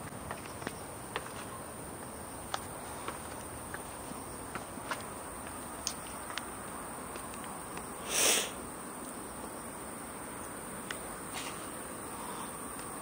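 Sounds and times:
footsteps on stone steps: 0.0s - 8.0s
outdoor background hiss: 0.0s - 13.0s.

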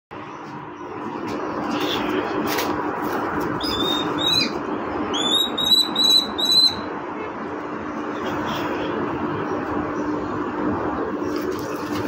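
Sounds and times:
steady background hum: 0.1s - 12.0s
bird chicks begging calls: 3.4s - 6.9s.

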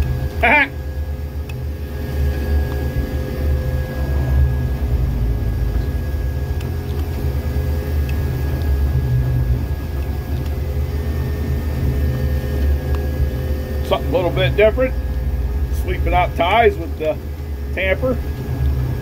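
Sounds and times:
machine engine droning: 0.0s - 19.0s
steady high whine: 0.0s - 19.0s.

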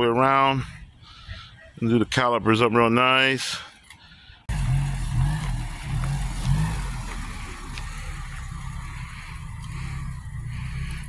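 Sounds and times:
car engine at low revs: 4.5s - 11.0s.

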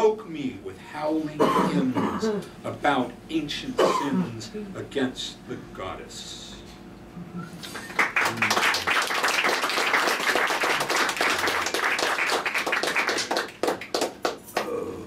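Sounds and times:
audience clapping: 7.6s - 14.7s.

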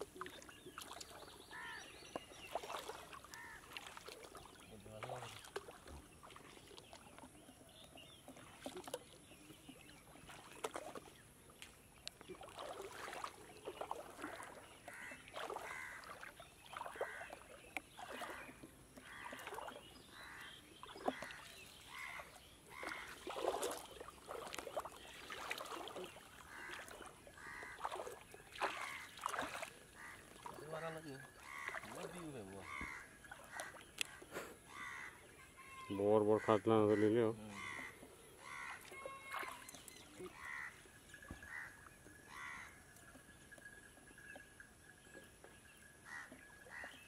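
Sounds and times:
water dripping and splashing: 0.0s - 47.0s.

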